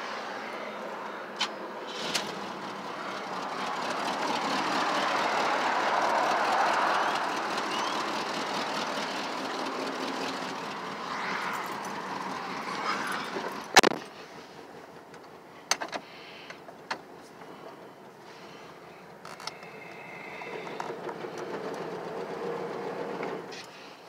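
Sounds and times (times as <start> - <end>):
steady rushing noise: 1.6 - 15.5.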